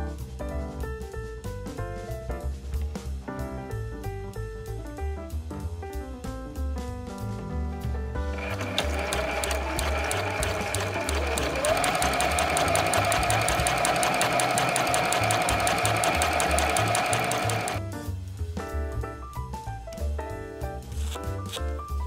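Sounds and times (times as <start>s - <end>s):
sewing machine motor whine: 8.3s - 17.8s
sewing machine needle clicking: 8.4s - 17.8s.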